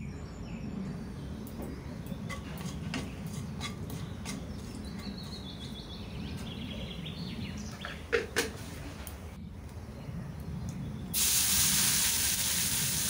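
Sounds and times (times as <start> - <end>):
bird chirping: 0.0 - 8.4
spices crackling in hot oil: 11.2 - 13.0.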